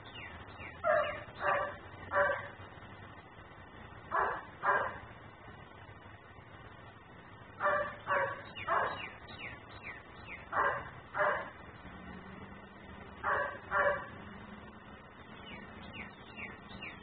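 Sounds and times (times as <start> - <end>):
dog barking: 0.8 - 2.6, 4.1 - 5.0, 7.6 - 9.1, 10.5 - 11.6, 13.2 - 14.2.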